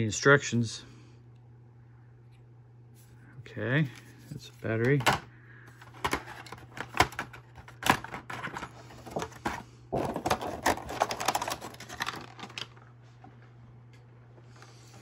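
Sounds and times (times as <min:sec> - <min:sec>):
plastic crinkling and crackling: 0:08.2 - 0:12.9.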